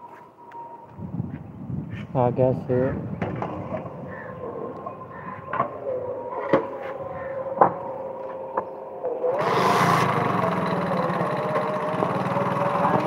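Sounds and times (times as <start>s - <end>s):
wind noise rushing: 0.9s - 4.3s
vehicle engine humming: 9.2s - 13.0s.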